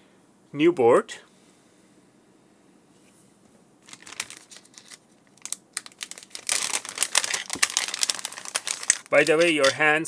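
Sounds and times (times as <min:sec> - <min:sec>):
plastic bag crinkling: 0:03.8 - 0:09.8.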